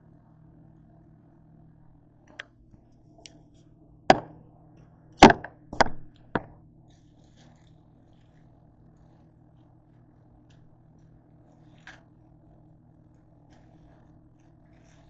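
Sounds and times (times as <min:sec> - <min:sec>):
faint low hum: 0:00.0 - 0:15.0
knocks on hard countertop: 0:04.1 - 0:04.4.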